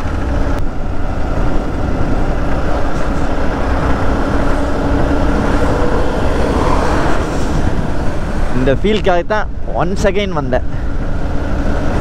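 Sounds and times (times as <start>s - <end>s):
motorcycle engine drone: 0.0s - 12.0s
wind rumble on microphone: 0.0s - 12.0s.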